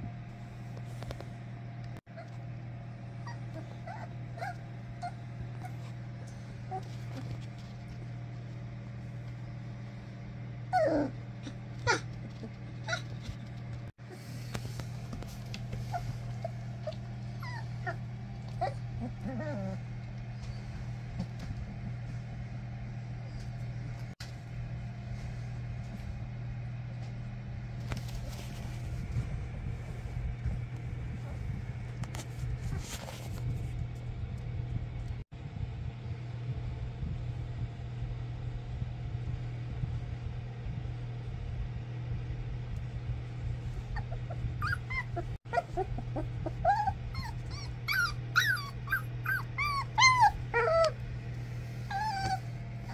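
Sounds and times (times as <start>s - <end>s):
low hum: 0.0s - 52.9s
puppies whimpering and squealing: 3.2s - 7.5s, 10.7s - 13.2s, 15.7s - 20.7s, 43.9s - 51.0s, 51.6s - 52.9s.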